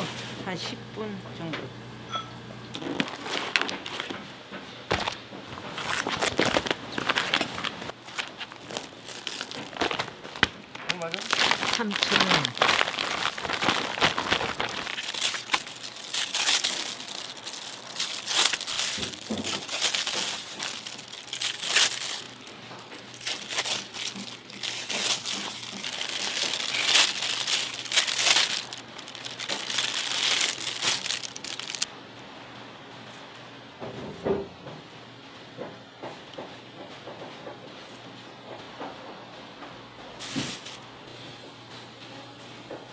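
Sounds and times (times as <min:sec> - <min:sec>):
packaging crinkling and rustling: 0:02.7 - 0:04.3, 0:04.9 - 0:31.9, 0:40.2 - 0:40.9.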